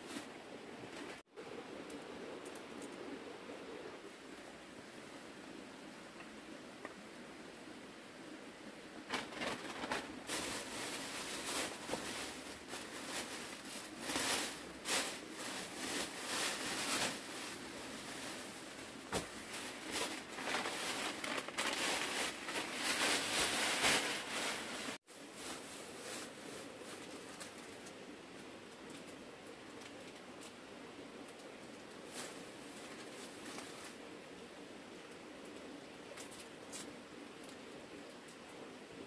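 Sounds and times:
plastic bags crinkling: 0:09.1 - 0:27.8.

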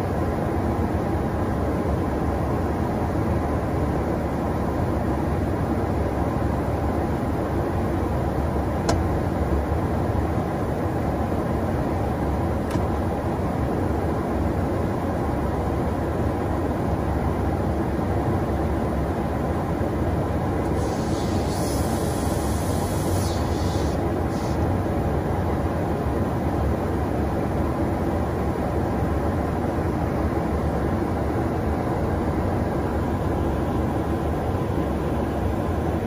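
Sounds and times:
aircraft engine and airflow rumble: 0:00.0 - 0:36.0
brief higher hiss: 0:20.7 - 0:24.6.

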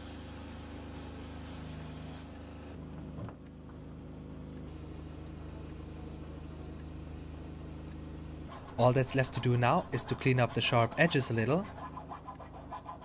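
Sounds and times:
plasma cutter hissing: 0:00.0 - 0:02.3
diesel generator humming: 0:02.9 - 0:12.7.

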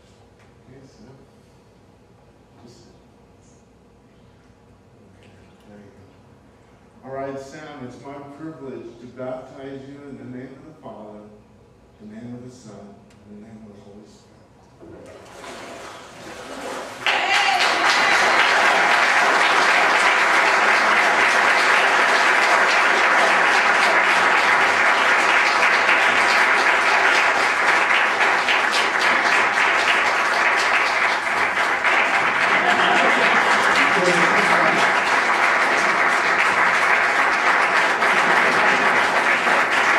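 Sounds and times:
congregation applauding: 0:15.2 - 0:39.9.

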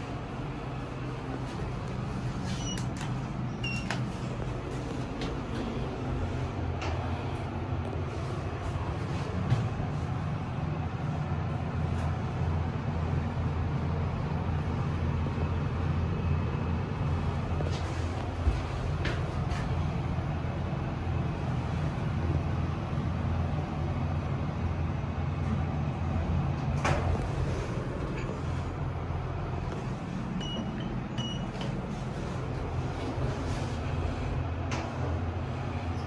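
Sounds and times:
lift car hum and rumble: 0:00.0 - 0:36.0.

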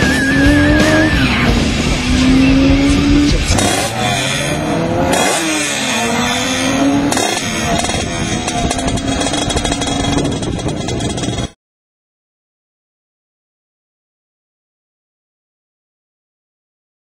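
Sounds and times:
motorcycle engine at full throttle: 0:00.0 - 0:11.6.

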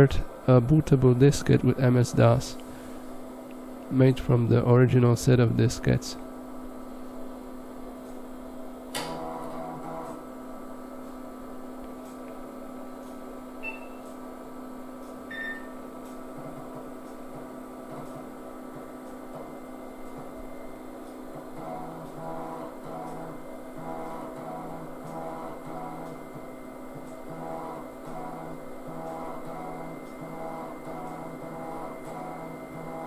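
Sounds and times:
computer fan hum: 0:00.0 - 0:33.0
floppy drive whirring: 0:11.2 - 0:33.0.

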